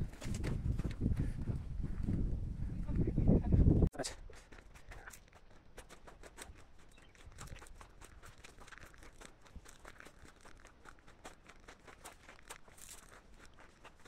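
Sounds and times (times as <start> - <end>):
footsteps on gravel: 4.4 - 14.0.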